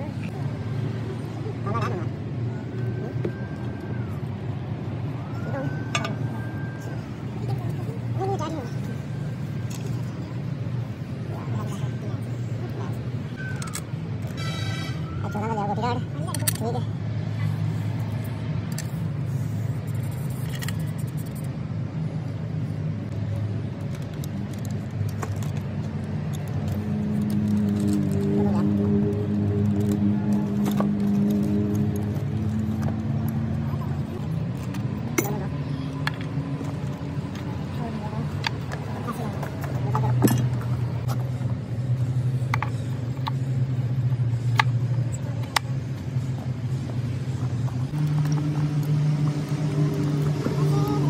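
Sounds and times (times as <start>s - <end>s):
engine humming: 0.0s - 51.0s
motor running drone: 46.2s - 51.0s.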